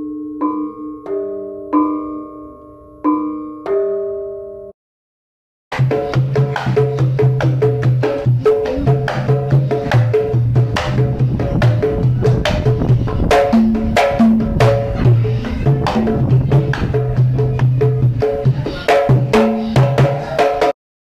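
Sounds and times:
hand drums playing fast pattern: 0:05.7 - 0:20.7.

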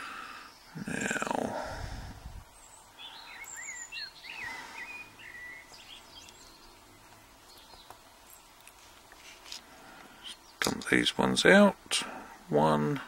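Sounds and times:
bird chirping: 0:02.4 - 0:08.8, 0:10.0 - 0:11.3.

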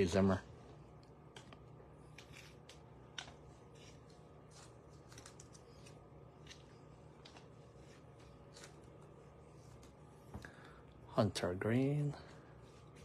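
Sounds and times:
low steady room hum: 0:00.0 - 0:13.0
trading cards being handled: 0:01.3 - 0:10.3.

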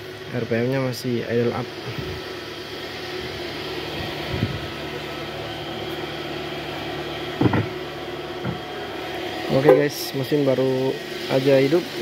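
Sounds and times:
car engine fast idle: 0:00.0 - 0:12.0.

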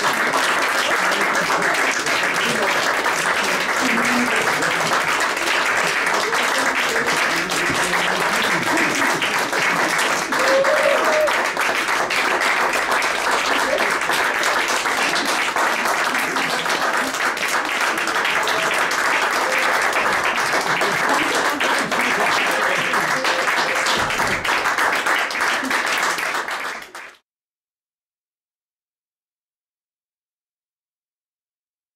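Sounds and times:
audience applauding: 0:00.0 - 0:27.2
faint voices: 0:00.9 - 0:11.6, 0:13.3 - 0:24.5.

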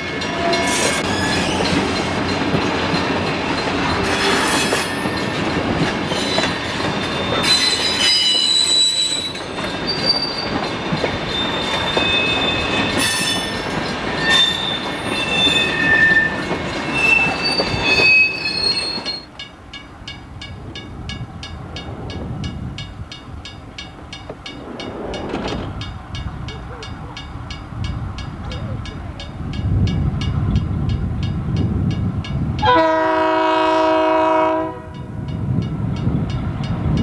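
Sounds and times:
distant train: 0:00.0 - 0:37.0
freight train rolling past: 0:00.0 - 0:37.0
wheel flange squeals: 0:06.1 - 0:19.3.

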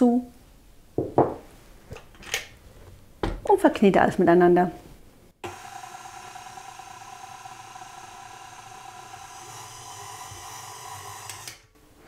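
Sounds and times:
stand mixer motor whine: 0:05.4 - 0:11.6.

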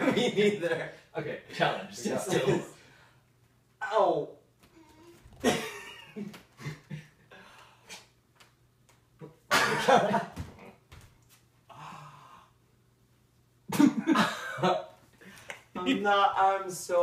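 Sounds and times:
people breathing: 0:15.1 - 0:15.8.

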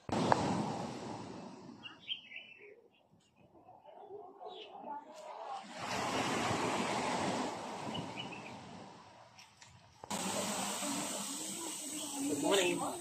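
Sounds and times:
rushing outdoor noise: 0:05.6 - 0:13.0
bright steady hiss: 0:10.1 - 0:13.0.

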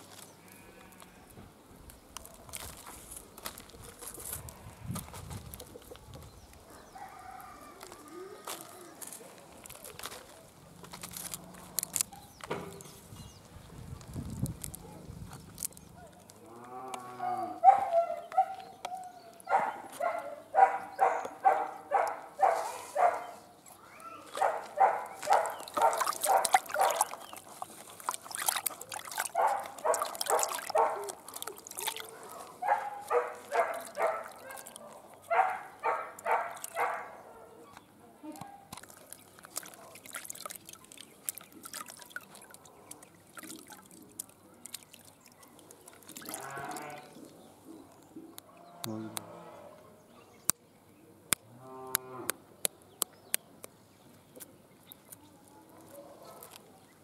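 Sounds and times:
water sloshing and dripping: 0:24.3 - 0:37.1, 0:38.4 - 0:48.7.

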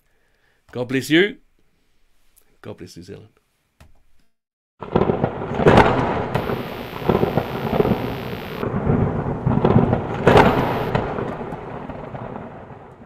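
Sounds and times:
loud thunder crack: 0:04.8 - 0:13.0
thunder rumbling: 0:04.8 - 0:13.0
high hiss: 0:06.4 - 0:08.6, 0:10.3 - 0:11.0.

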